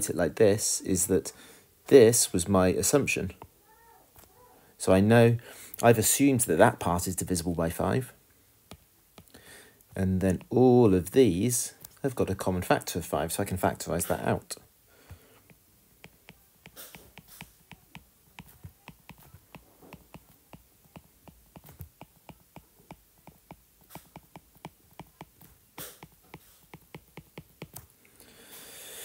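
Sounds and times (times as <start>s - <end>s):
stylus tapping on glass screen: 15.5s - 27.9s.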